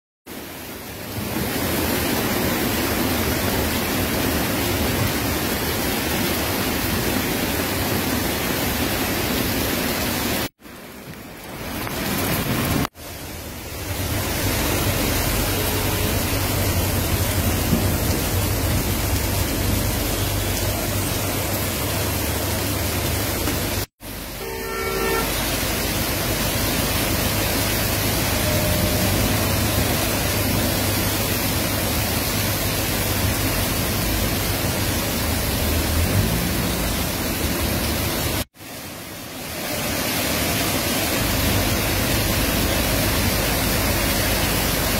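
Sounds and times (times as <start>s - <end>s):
heavy rain pouring: 0.3s - 44.9s
vehicles driving through water: 0.7s - 44.9s
car horn toot: 15.2s - 16.8s, 24.3s - 25.6s, 28.2s - 30.6s.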